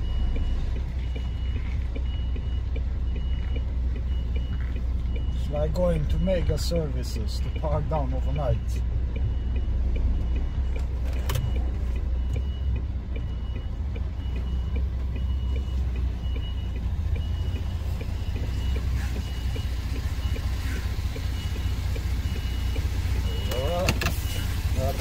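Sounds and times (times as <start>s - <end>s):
lorry diesel engine rumbling: 0.0s - 25.0s
faint high beep: 23.2s - 24.4s.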